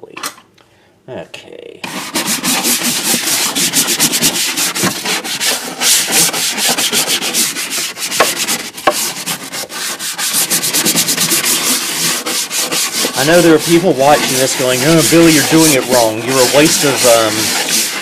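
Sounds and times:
scrubbing plastic lid: 0:01.8 - 0:18.0.

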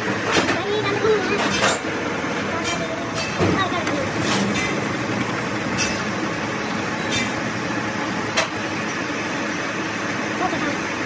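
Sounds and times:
metal lathe drilling: 0:04.0 - 0:07.0.

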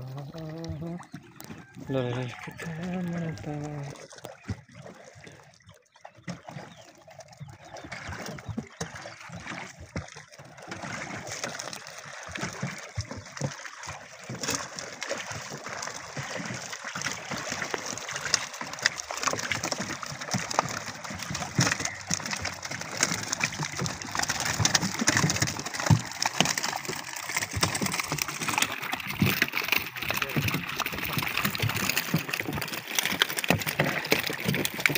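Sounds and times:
birds calling: 0:00.0 - 0:10.3, 0:20.7 - 0:25.4
paddle splashing in water: 0:00.0 - 0:34.9.

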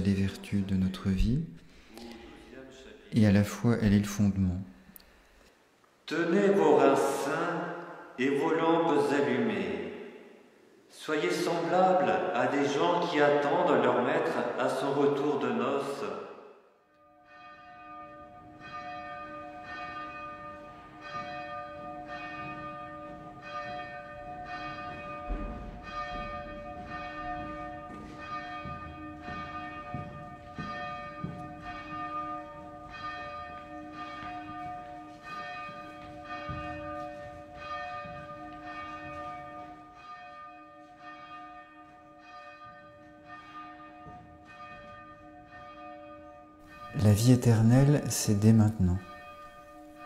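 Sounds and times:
monastery bell ringing: 0:16.1 - 0:50.0.

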